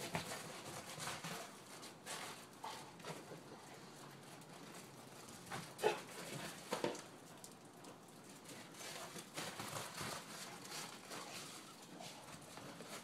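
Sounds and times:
dog's paws on snow: 7.9 - 13.0.

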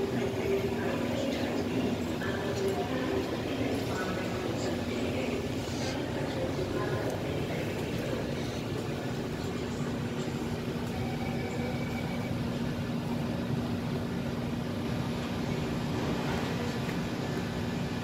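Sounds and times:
train air-conditioning hum: 0.0 - 18.0.

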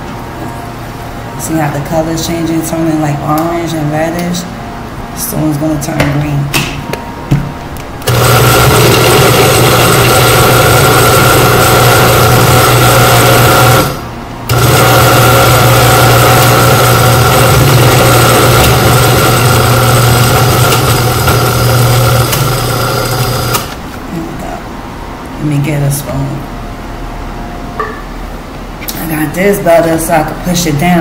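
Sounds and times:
blender motor running: 8.0 - 23.8.

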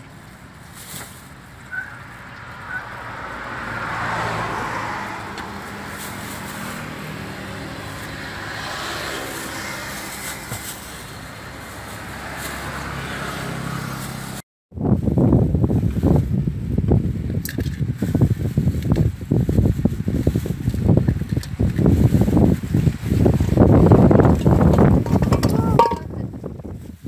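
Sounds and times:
vehicle engine humming: 0.0 - 14.4
passing traffic: 0.0 - 27.0.

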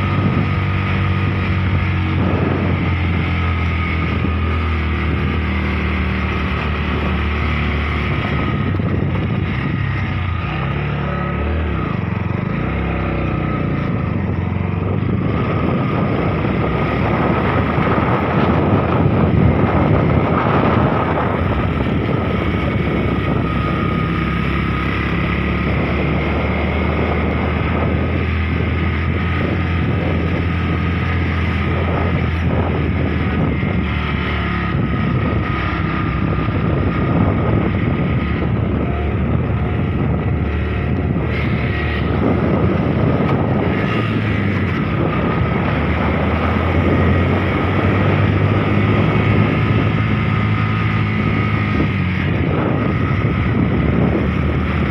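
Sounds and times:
motorcycle engine running: 0.0 - 54.9
wind noise on microphone: 0.0 - 54.9.

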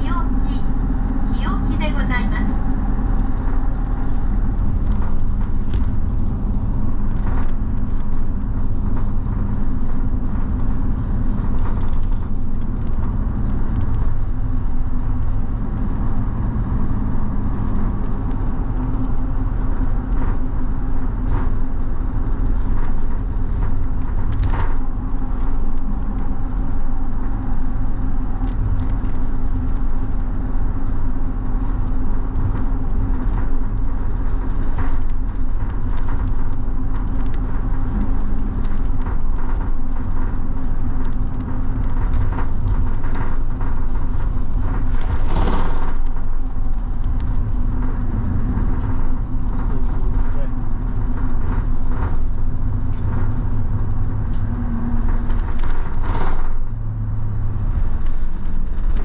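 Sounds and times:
bus engine drone: 0.0 - 59.0
road rumble: 0.0 - 59.0
light rattles and clicks: 2.6 - 59.0.

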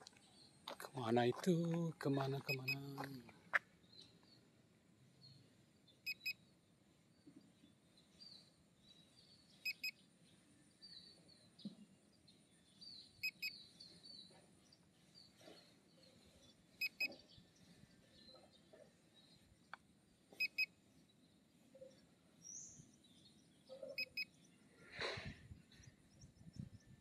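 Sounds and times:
faint bird chirps: 0.0 - 4.5, 5.1 - 27.0
electronic double beeps: 2.4 - 3.0.

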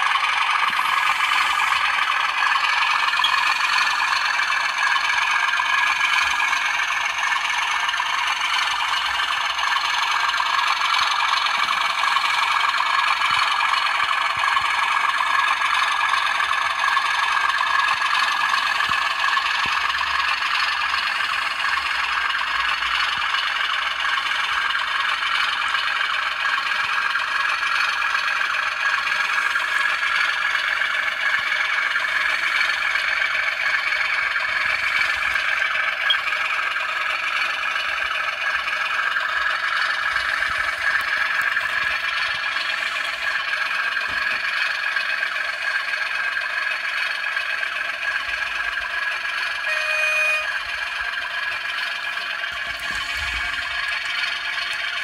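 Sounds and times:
model train running on track: 0.0 - 55.0
brief tone: 36.0 - 36.3, 49.6 - 50.7.

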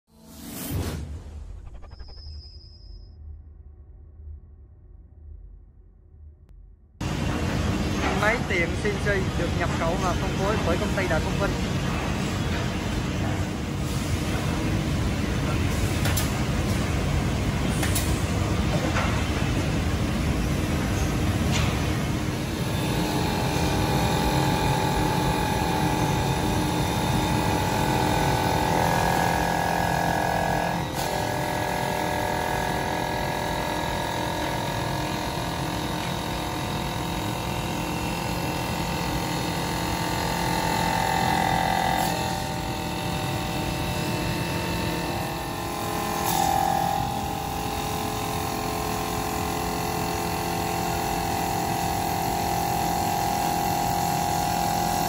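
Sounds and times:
wood lathe whine: 22.6 - 55.0.

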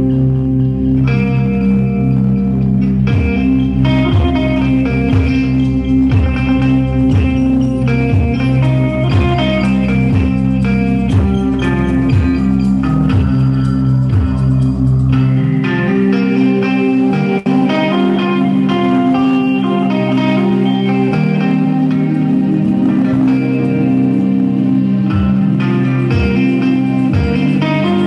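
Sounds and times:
electric guitar playing: 0.0 - 28.0
low drone notes: 0.0 - 28.0.

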